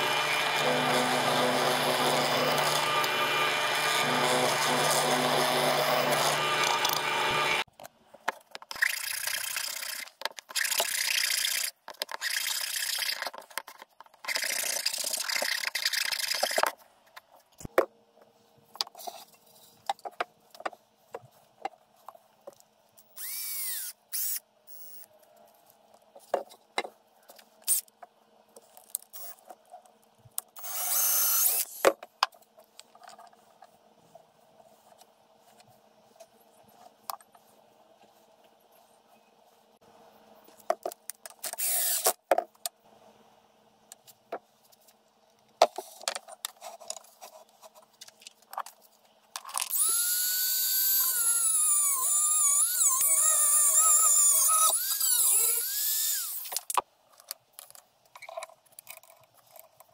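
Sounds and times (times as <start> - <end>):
cordless drill running: 0.0 - 7.6, 23.2 - 25.0, 30.6 - 31.8, 41.6 - 42.1, 49.7 - 56.5
drill press boring wood: 0.0 - 7.6, 23.2 - 25.0, 30.6 - 31.8, 41.6 - 42.1, 49.7 - 56.5.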